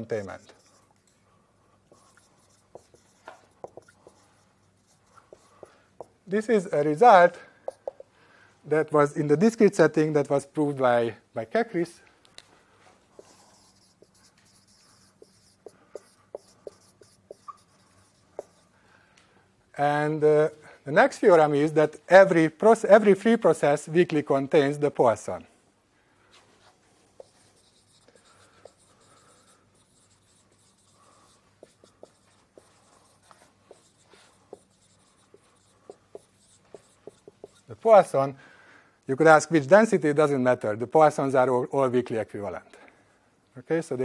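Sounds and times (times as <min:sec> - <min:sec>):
marker squeaking on whiteboard: 0:00.0 - 0:01.0, 0:01.9 - 0:06.9, 0:07.6 - 0:08.0, 0:13.2 - 0:18.8, 0:27.1 - 0:37.8.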